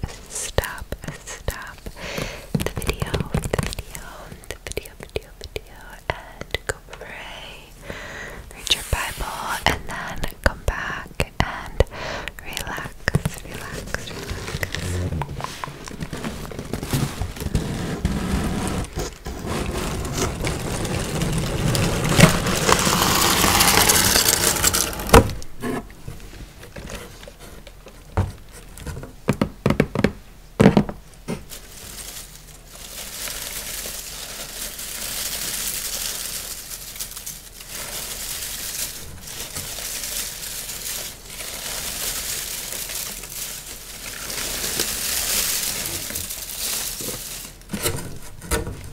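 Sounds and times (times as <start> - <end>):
paper filler rustling: 13.2 - 25.4, 31.4 - 48.9
cardboard box being opened: 13.9 - 25.4.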